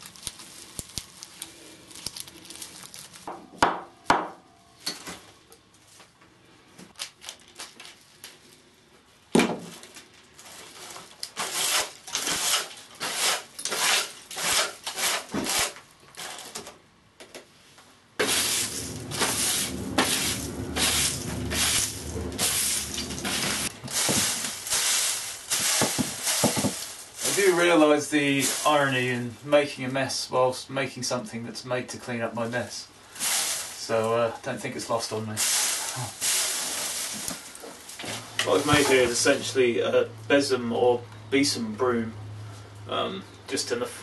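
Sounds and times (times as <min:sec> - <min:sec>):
brush sweeping wooden bench: 0:18.2 - 0:27.7, 0:35.4 - 0:39.4
wood shavings swept on floor: 0:18.2 - 0:30.0, 0:32.5 - 0:34.0, 0:35.0 - 0:39.5.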